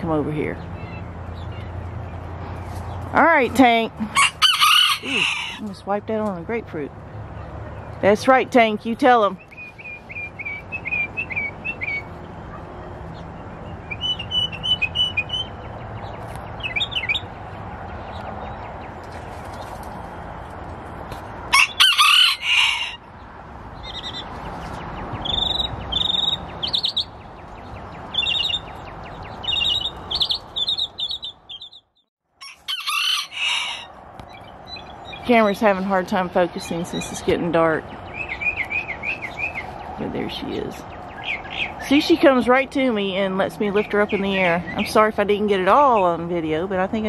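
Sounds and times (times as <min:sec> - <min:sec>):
small birds chirping: 0:00.0 - 0:04.0, 0:05.1 - 0:20.7, 0:23.1 - 0:32.1, 0:34.1 - 0:47.0
rooster crowing: 0:04.2 - 0:05.7, 0:21.5 - 0:23.1, 0:32.4 - 0:34.0.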